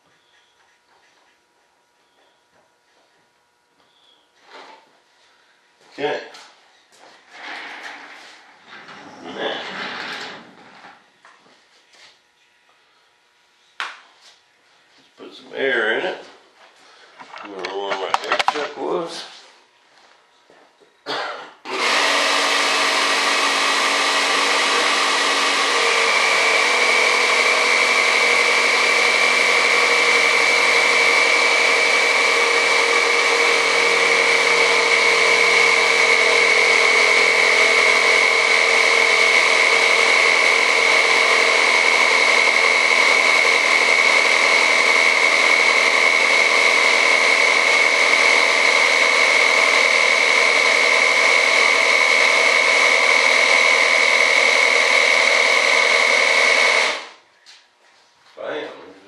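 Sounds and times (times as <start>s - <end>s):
air compressor running: 7.2s - 11.2s, 16.8s - 19.4s, 21.1s - 57.2s
high steady whine: 17.1s - 19.2s.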